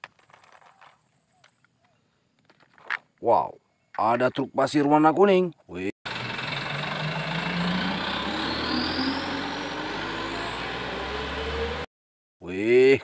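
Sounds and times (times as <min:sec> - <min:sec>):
road and tyre noise: 0:06.1 - 0:11.9
truck engine accelerating: 0:06.1 - 0:11.9.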